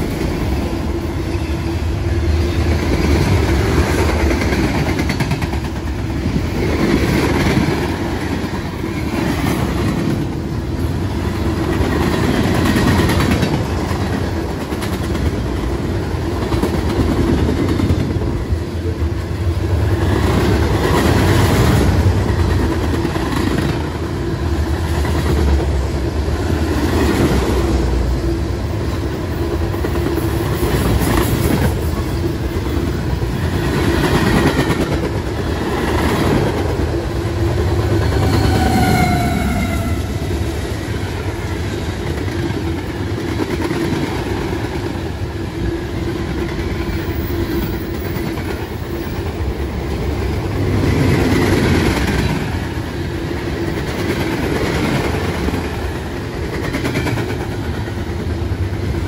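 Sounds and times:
train rumble: 0:00.0 - 0:59.0
train wheels clacking over joints: 0:02.6 - 0:08.4.

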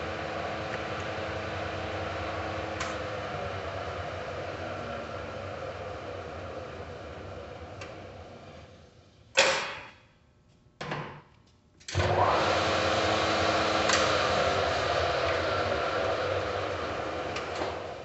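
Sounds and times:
lathe spindle running: 0:00.0 - 0:08.4, 0:12.0 - 0:18.0.

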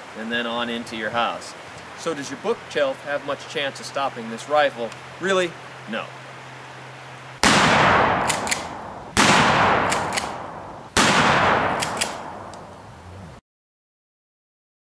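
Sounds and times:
gunshot-like booms: 0:07.4 - 0:12.5.

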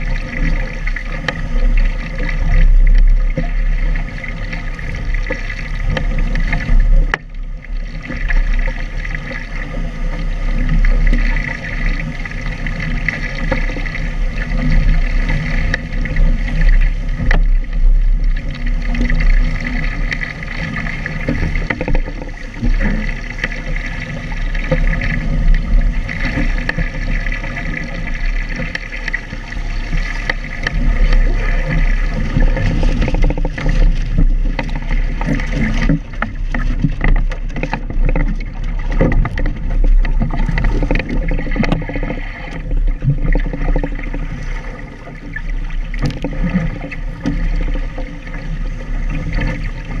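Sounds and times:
water rushing along a hull: 0:00.0 - 0:50.0
waves slapping against hull: 0:00.0 - 0:50.0.

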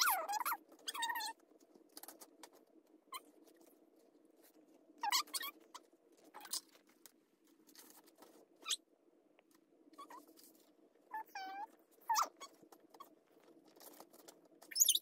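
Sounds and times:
paper rustling and crinkling: 0:05.7 - 0:08.6, 0:11.6 - 0:14.8.

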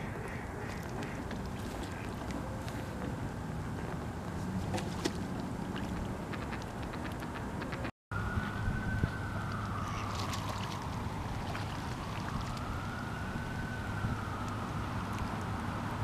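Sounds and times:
emergency vehicle siren wailing: 0:08.1 - 0:16.0.

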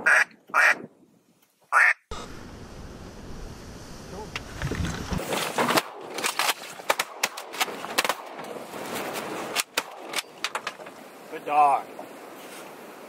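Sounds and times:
low rumble: 0:02.1 - 0:05.2
shotgun shots: 0:05.7 - 0:08.4.

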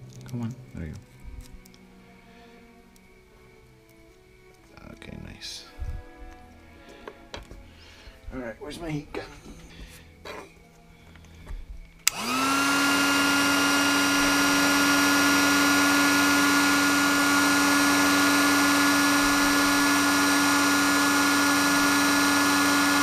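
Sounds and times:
heat gun switch click: 0:12.0 - 0:13.8
heat gun fan whine and hum: 0:12.0 - 0:23.0.

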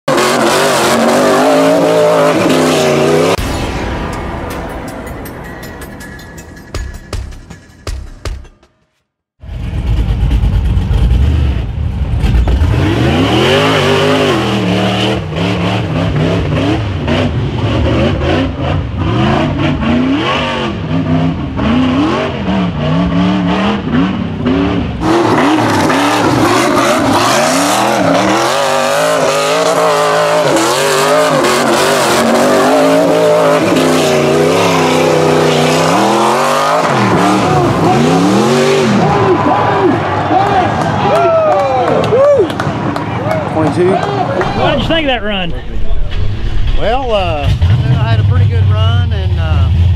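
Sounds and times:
engine revving hard: 0:00.1 - 0:03.4, 0:09.4 - 0:40.7, 0:46.8 - 0:49.9.

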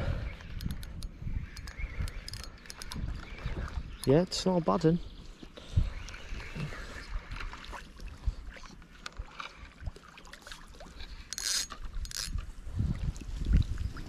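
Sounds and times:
fishing reel clicking: 0:00.5 - 0:03.1, 0:11.3 - 0:12.4.

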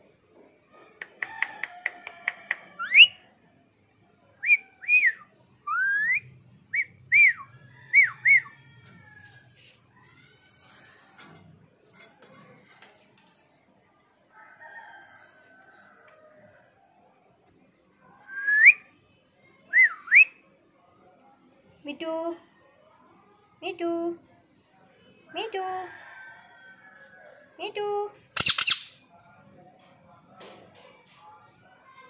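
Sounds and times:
parrot clicking chirps: 0:28.4 - 0:29.0.

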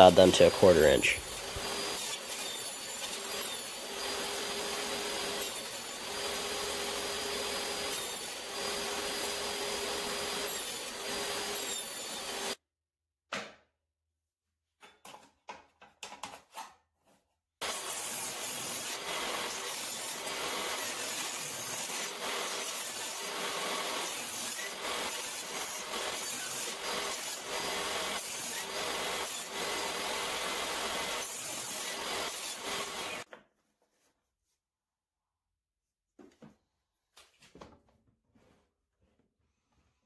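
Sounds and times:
table saw cutting wood: 0:00.0 - 0:12.6, 0:17.6 - 0:33.3.

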